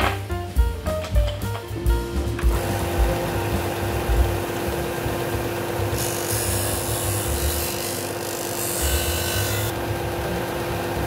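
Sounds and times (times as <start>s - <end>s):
sander motor humming: 2.2s - 11.0s
wood rasping on sanding disc: 5.8s - 9.8s.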